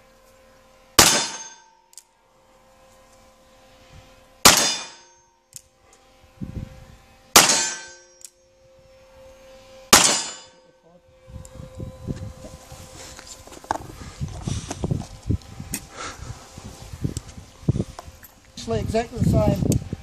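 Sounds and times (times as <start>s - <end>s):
revolver shots with metallic ring: 1.0s - 1.7s, 4.4s - 5.2s, 7.3s - 8.2s, 9.9s - 10.7s.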